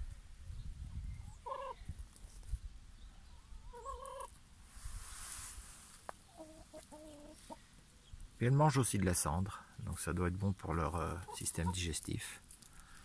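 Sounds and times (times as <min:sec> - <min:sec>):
hens clucking: 0:01.3 - 0:01.8, 0:03.4 - 0:04.4, 0:06.1 - 0:07.8, 0:10.8 - 0:12.1.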